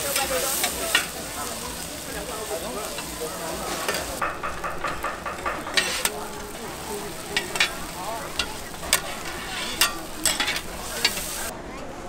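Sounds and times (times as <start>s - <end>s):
food sizzling: 0.0s - 11.5s
metal spatula scraping: 3.7s - 11.5s.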